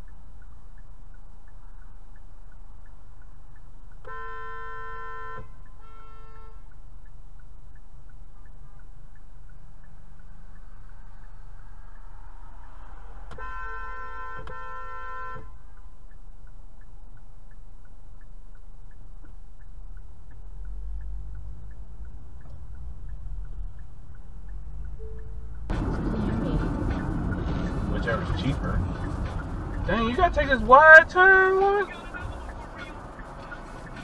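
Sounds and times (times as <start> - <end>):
car engine humming: 0.0 - 34.0
turn signal ticking: 0.0 - 34.0
car horn honking: 4.0 - 6.8, 13.3 - 15.7.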